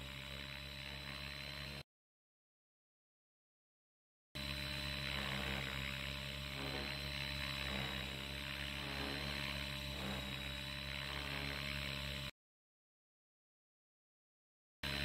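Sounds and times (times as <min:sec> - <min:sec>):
model helicopter rotor and motor: 0:00.0 - 0:01.9, 0:04.4 - 0:12.4.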